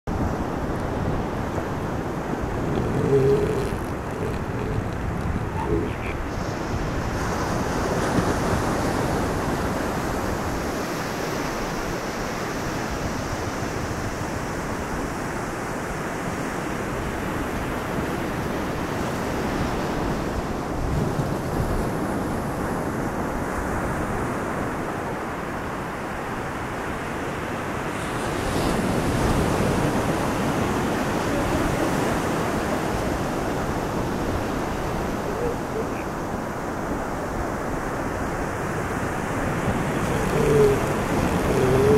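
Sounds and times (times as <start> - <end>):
wind on microphone: 0.1 - 11.4, 27.9 - 41.9
ocean surf: 0.1 - 41.9.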